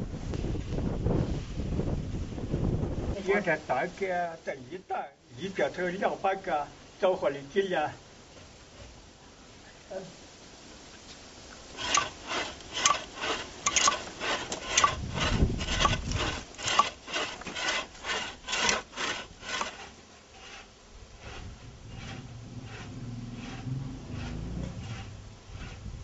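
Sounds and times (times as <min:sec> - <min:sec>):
hand saw cutting log: 0:11.7 - 0:26.0.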